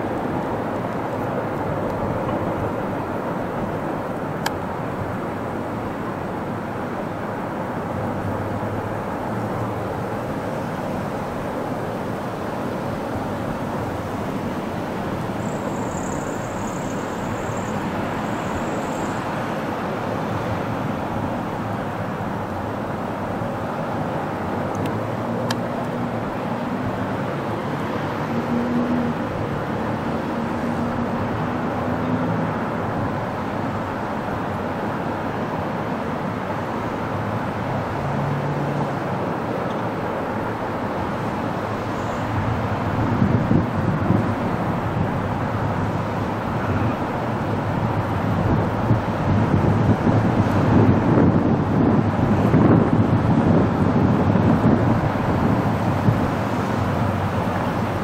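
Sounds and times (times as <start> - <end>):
train rumbling on rails: 0.0 - 58.0
faint high whine: 15.3 - 19.3.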